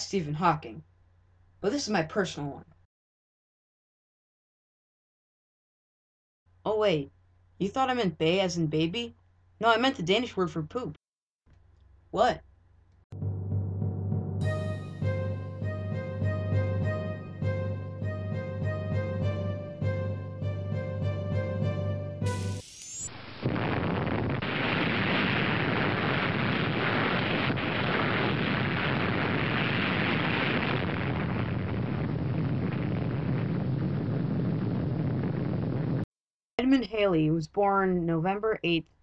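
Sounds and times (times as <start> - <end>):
explosion roar: 22.3 - 36.0.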